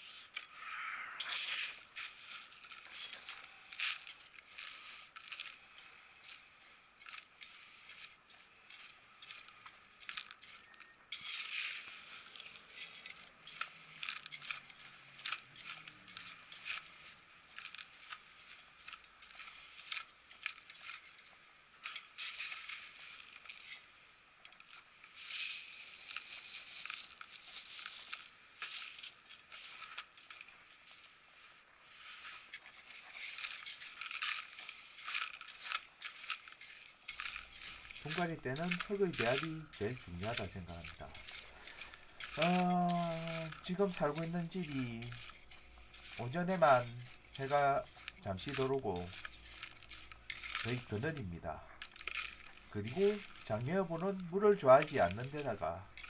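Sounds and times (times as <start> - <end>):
grit pouring and rattling: 0.0 - 56.0
trowel scraping gritty soil: 1.2 - 21.3, 31.8 - 56.0.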